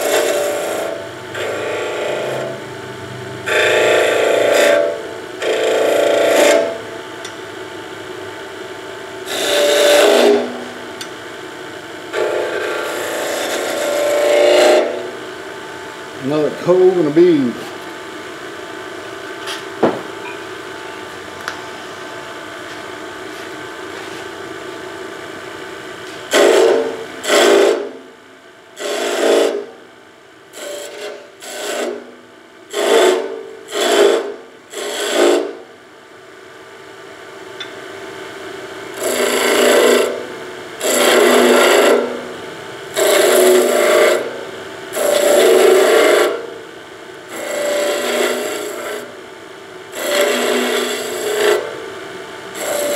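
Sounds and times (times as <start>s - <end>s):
chisel cutting spinning wood: 0.0s - 2.7s, 3.4s - 6.8s, 9.2s - 11.0s, 12.1s - 15.4s, 16.2s - 17.6s, 26.3s - 28.1s, 28.8s - 29.8s, 30.5s - 35.6s, 38.9s - 46.6s, 47.3s - 49.3s, 49.9s - 51.9s, 52.5s - 52.9s
wood lathe humming: 0.0s - 2.8s, 3.4s - 7.4s, 9.1s - 17.9s, 26.3s - 28.0s, 28.8s - 29.8s, 30.5s - 35.6s, 38.9s - 46.6s, 47.2s - 52.9s.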